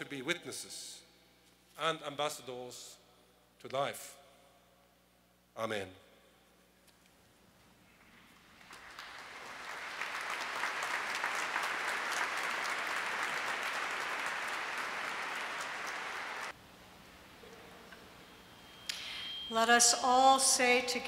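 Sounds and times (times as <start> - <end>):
congregation applauding: 8.2 - 16.6.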